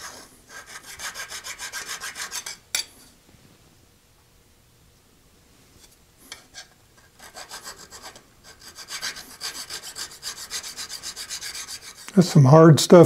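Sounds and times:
hand file rasping on steel: 0:00.0 - 0:02.6, 0:06.3 - 0:12.2.

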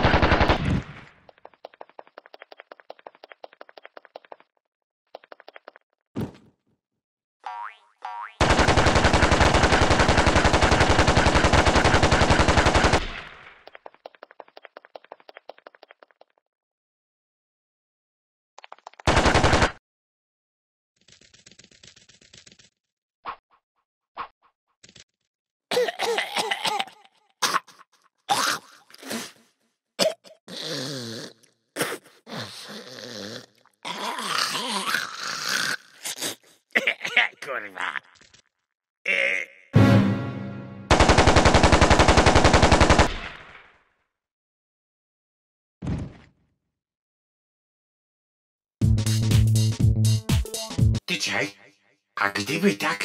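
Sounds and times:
assault rifle automatic burst: 0:00.0 - 0:00.6, 0:08.4 - 0:13.0, 0:19.1 - 0:19.8, 0:40.9 - 0:43.2
cartoon alien coughs and groans: 0:25.7 - 0:29.3, 0:30.0 - 0:38.2, 0:39.1 - 0:39.7.

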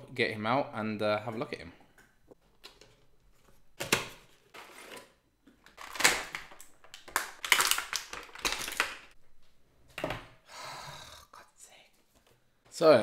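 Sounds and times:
cardboard and plastic crinkling: 0:04.1 - 0:09.2.

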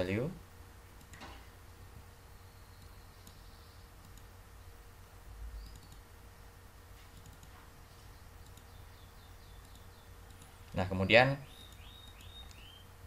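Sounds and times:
low steady hum: 0:00.0 - 0:13.0
faint computer mouse clicks: 0:02.8 - 0:04.3, 0:05.6 - 0:06.1, 0:07.2 - 0:07.6, 0:08.4 - 0:08.8, 0:09.6 - 0:10.5.

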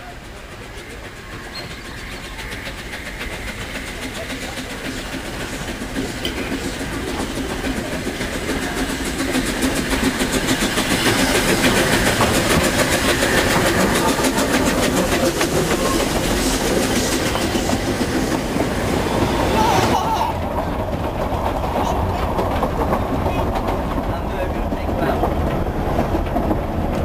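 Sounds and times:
steam train passing: 0:00.0 - 0:27.0
train wheels clicking over rails: 0:00.0 - 0:27.0.

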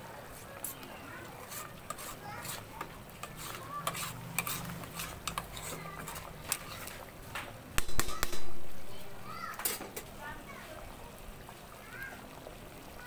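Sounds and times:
metal ladle stirring in pot: 0:00.6 - 0:07.2.

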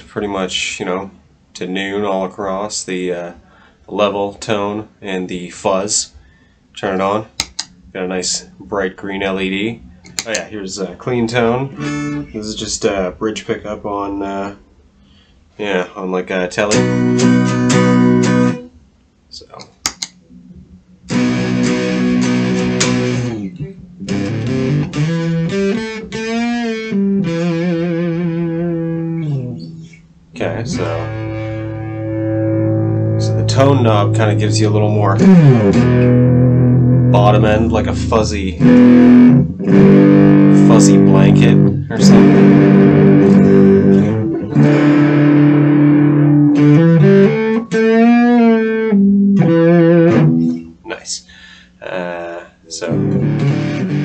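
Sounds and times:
fuzz electric guitar chords: 0:11.6 - 0:12.4, 0:16.7 - 0:18.7, 0:21.0 - 0:50.8, 0:52.8 - 0:54.0.

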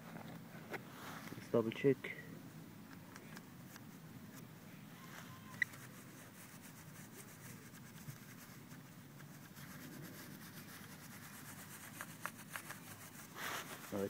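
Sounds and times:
probe rubbing through grass: 0:05.0 - 0:14.0.

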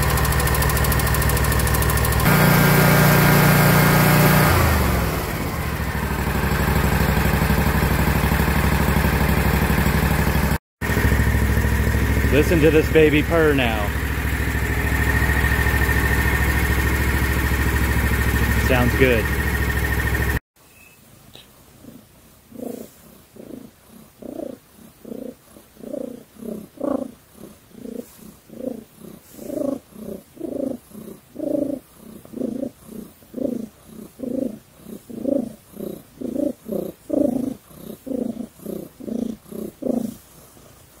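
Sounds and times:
cat purring: 0:21.8 - 0:40.9.

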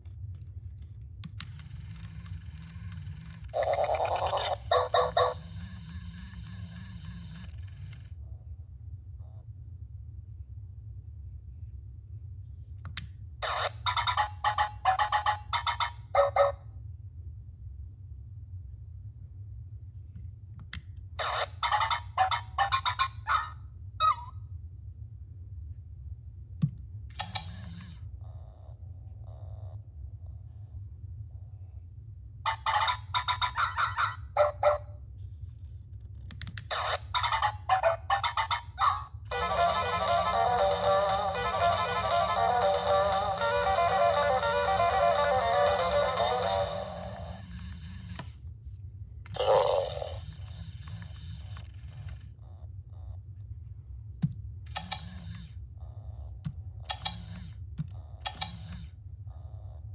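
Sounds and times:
small motor whirring: 0:01.5 - 0:03.7, 0:05.3 - 0:08.1
toy electronic chirping: 0:13.5 - 0:16.5, 0:37.0 - 0:47.4.

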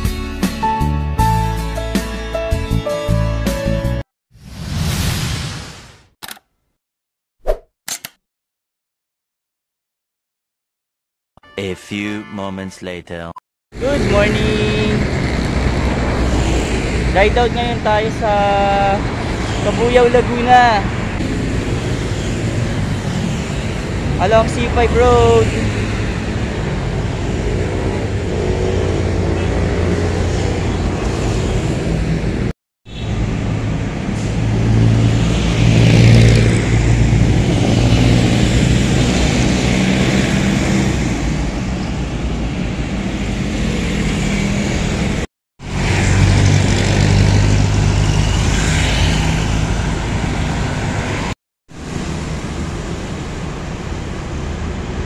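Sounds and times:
road traffic passing: 0:13.8 - 0:55.0.

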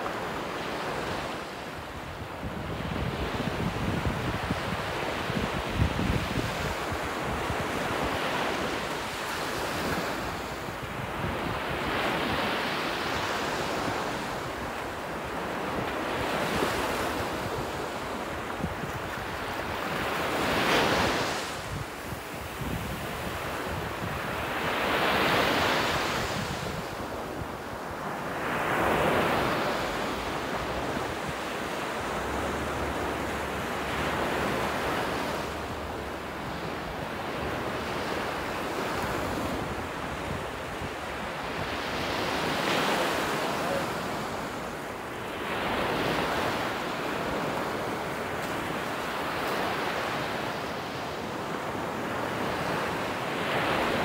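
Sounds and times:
small waves breaking on shore: 0:00.0 - 0:54.0
wind buffeting microphone: 0:02.1 - 0:14.7, 0:15.4 - 0:27.8.

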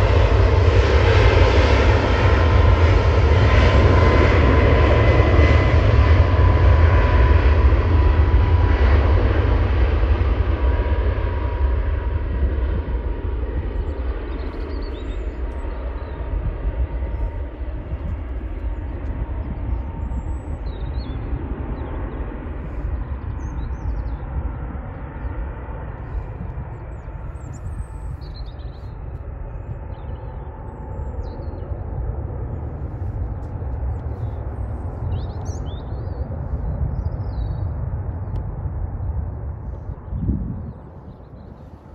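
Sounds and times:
jet engines rumbling: 0:00.0 - 0:41.9
small birds chirping: 0:13.7 - 0:16.4, 0:17.0 - 0:31.8, 0:32.9 - 0:38.4.

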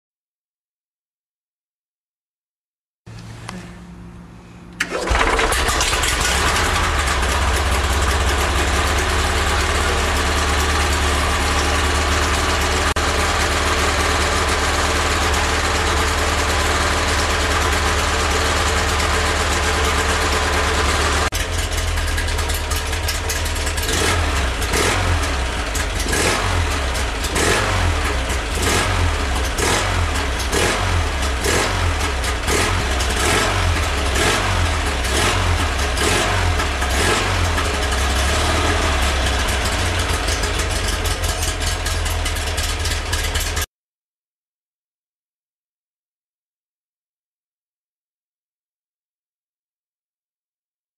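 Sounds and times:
engine throttle blips: 0:03.1 - 0:43.7
flat-twin engine running: 0:04.6 - 0:43.7.

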